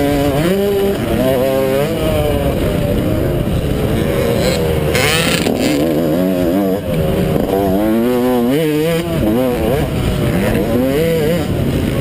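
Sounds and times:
motocross bike engine revving: 0:00.0 - 0:12.0.

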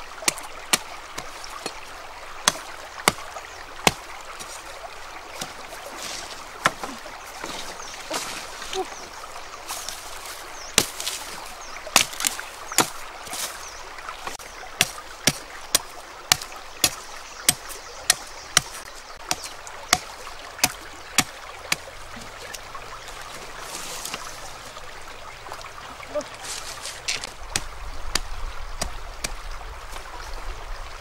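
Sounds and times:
machete chopping bamboo: 0:11.9 - 0:13.0, 0:14.8 - 0:21.8.

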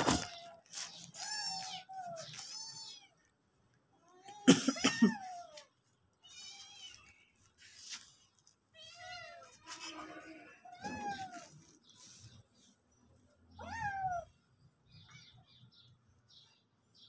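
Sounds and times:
cats meowing: 0:00.0 - 0:03.3, 0:03.9 - 0:07.4, 0:08.7 - 0:12.2, 0:13.5 - 0:15.2.

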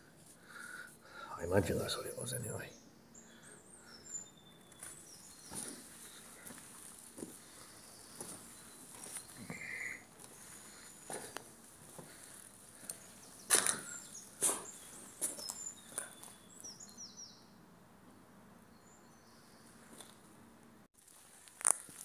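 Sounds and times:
footsteps crunching on rubble: 0:04.7 - 0:16.4.

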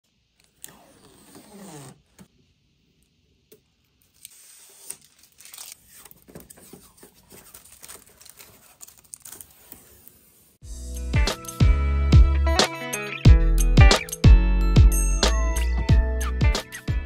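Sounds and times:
plastic film peeling: 0:04.0 - 0:10.5.

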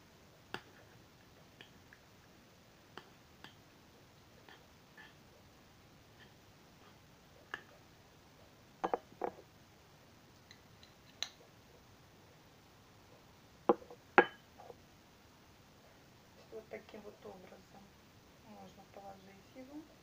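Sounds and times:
utensil clinking on pot and plate: 0:13.7 - 0:14.4.

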